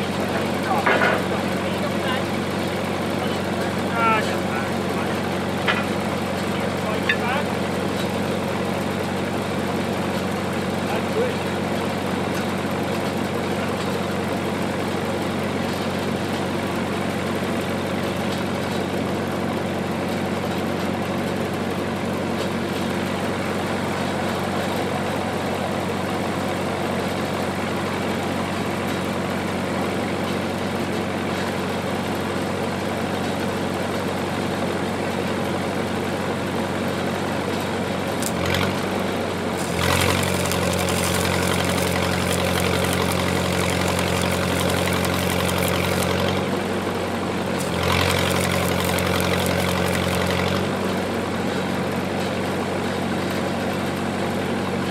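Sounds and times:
welder engine running: 0.0 - 54.9
welding arc crackling hiss: 39.6 - 46.4, 47.6 - 50.6.

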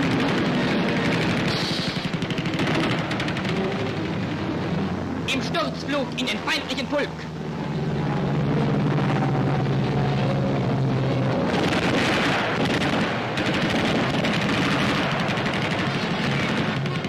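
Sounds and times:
aircraft engines droning: 0.0 - 17.0
hissing roar: 1.3 - 4.9.

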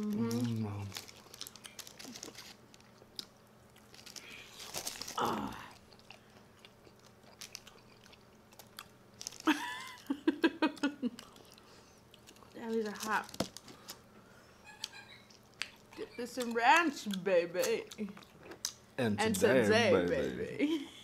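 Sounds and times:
chewing chicken wings: 0.0 - 10.0.

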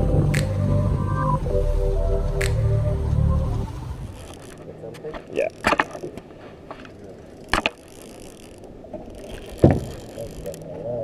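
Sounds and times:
fishing reel ticking: 4.0 - 4.7, 5.4 - 6.2, 6.9 - 11.0.

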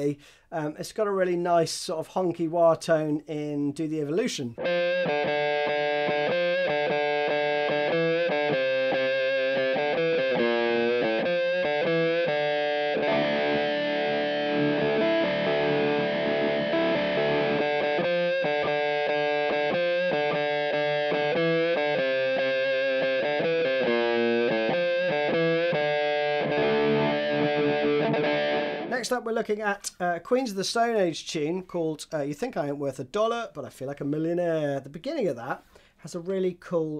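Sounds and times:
distorted electric guitar with wah: 4.6 - 29.0.

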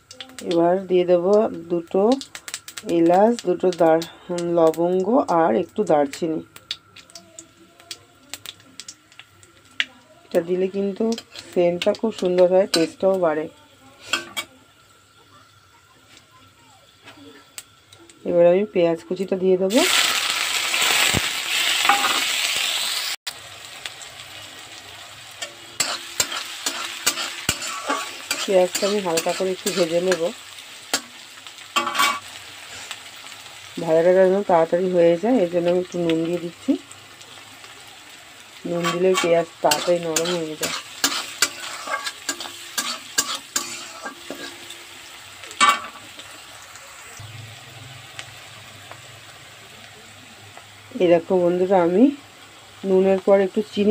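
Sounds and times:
onions sizzling in hot oil: 0.0 - 53.9
spatula scraping pan: 25.4 - 30.3, 31.8 - 32.2, 38.7 - 44.8.

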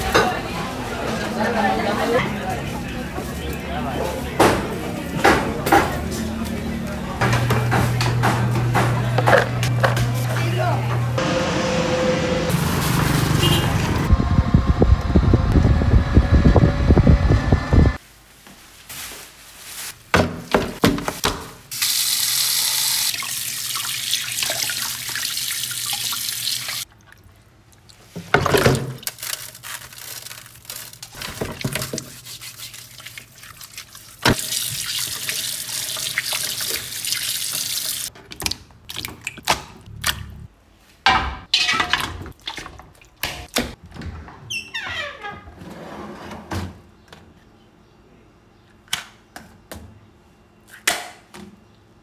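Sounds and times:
knocks and splashes in basin: 31.2 - 32.1.

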